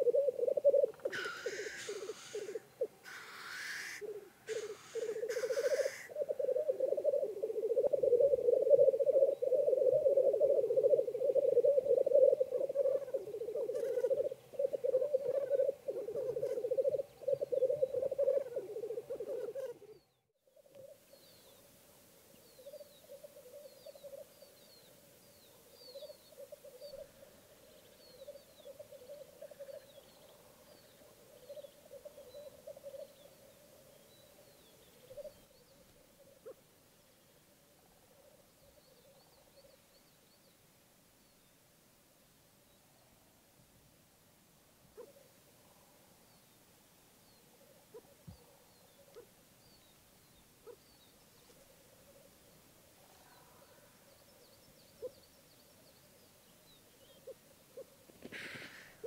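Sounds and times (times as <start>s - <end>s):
grouse bubbling chorus: 4.6s - 19.6s.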